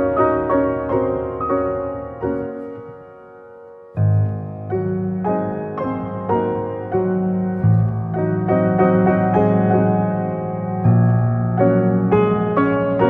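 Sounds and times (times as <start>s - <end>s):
keyboard melody: 0.0s - 13.0s
deep bass notes: 7.6s - 8.6s.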